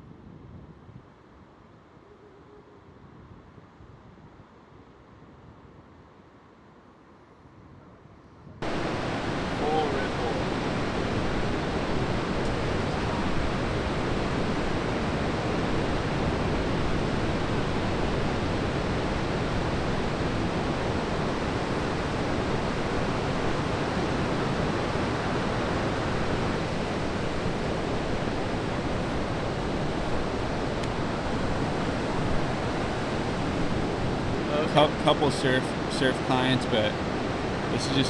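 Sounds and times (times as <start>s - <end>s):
ocean surf breaking: 8.6s - 38.0s.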